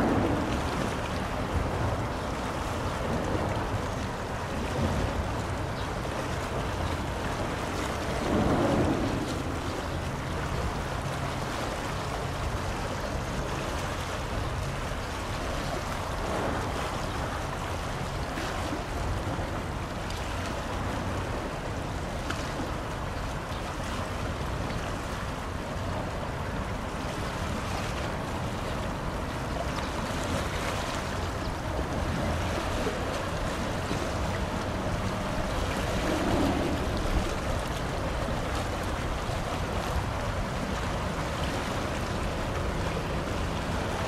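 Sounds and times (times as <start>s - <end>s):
bow wave wash: 0.0s - 44.0s
ship engine low rumble: 0.0s - 44.0s
wind on microphone: 0.0s - 44.0s.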